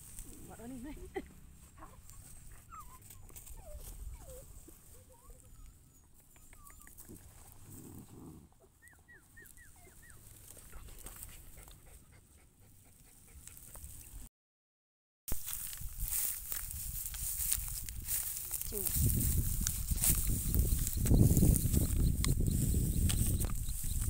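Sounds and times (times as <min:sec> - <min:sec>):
dog whimpering: 0:01.8 - 0:07.2, 0:08.5 - 0:10.3
short high dog squeaks: 0:02.1 - 0:07.2.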